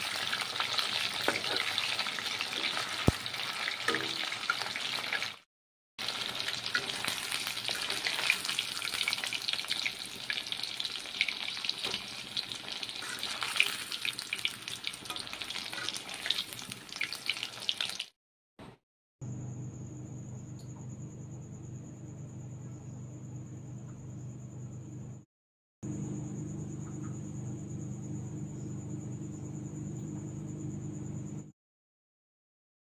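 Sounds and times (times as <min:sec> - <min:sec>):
deep-frying sizzle with pops: 0:00.0 - 0:05.4, 0:06.0 - 0:18.2
spatula stirring: 0:06.5 - 0:09.3, 0:12.7 - 0:17.2.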